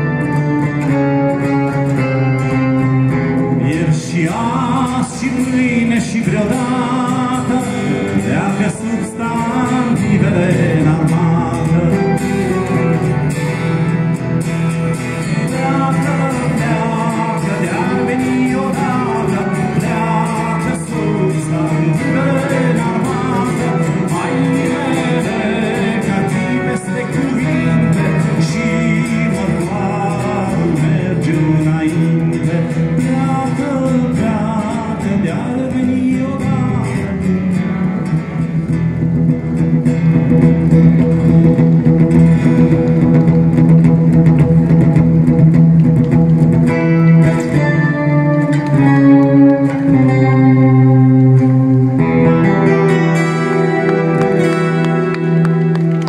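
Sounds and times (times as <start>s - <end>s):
acoustic guitars playing: 0.0s - 56.0s.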